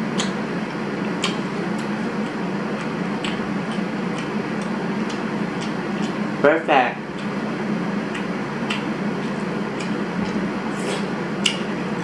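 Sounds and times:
steady low hum: 0:00.0 - 0:12.0
chewing with mouth clicks: 0:00.2 - 0:00.4, 0:01.0 - 0:06.3, 0:08.1 - 0:12.0.

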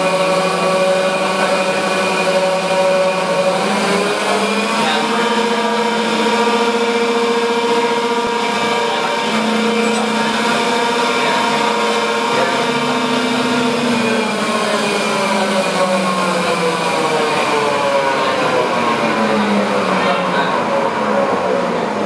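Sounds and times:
machine spindle whine: 0:00.0 - 0:22.0.

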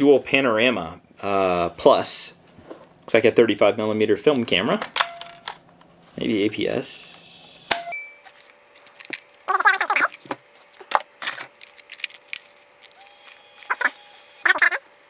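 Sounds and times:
small camera motor whirring: 0:12.8 - 0:14.8.

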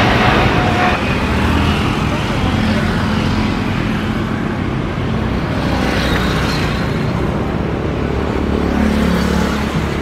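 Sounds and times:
jet engines rumbling: 0:00.0 - 0:06.0.

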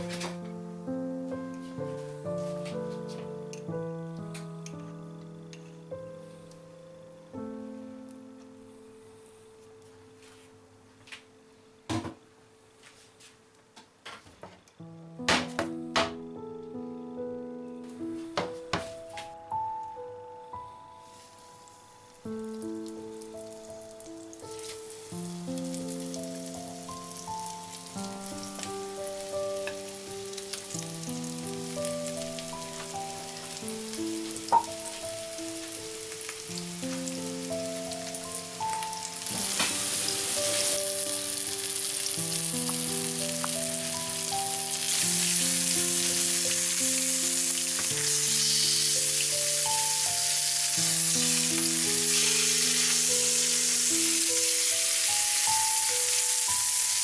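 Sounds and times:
gentle background music: 0:00.0 - 0:13.8, 0:14.6 - 0:57.0
fish sizzling in a frying pan: 0:21.0 - 0:57.0.

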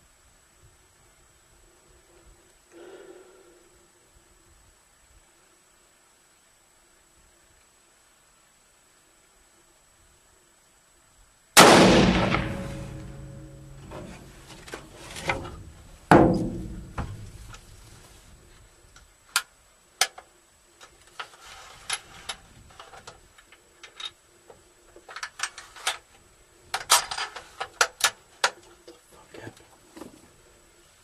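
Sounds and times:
rifle shot echoing: 0:11.6 - 0:14.5.

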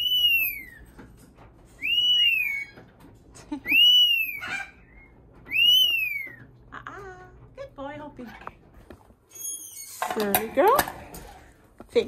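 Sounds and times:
parrot squawk: 0:00.0 - 0:00.9, 0:01.8 - 0:02.9, 0:03.6 - 0:06.4
parrot whistling: 0:00.0 - 0:00.9, 0:01.8 - 0:02.8, 0:03.6 - 0:06.5.

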